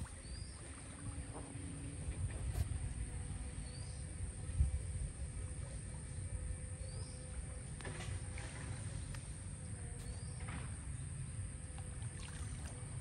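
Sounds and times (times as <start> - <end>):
water splashing: 0.0 - 1.0, 11.8 - 13.0.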